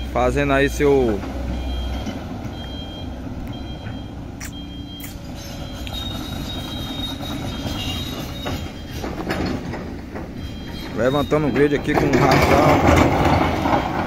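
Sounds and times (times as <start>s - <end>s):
excavator diesel engine running: 0.0s - 14.0s
steel tracks squealing: 3.7s - 14.0s
metal clanks: 3.8s - 14.0s.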